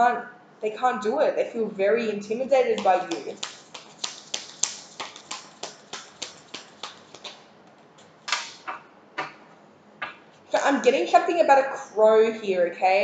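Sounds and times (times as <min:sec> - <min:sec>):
cards rustling: 0:02.8 - 0:08.7
cards clicking while shuffled: 0:02.8 - 0:09.4.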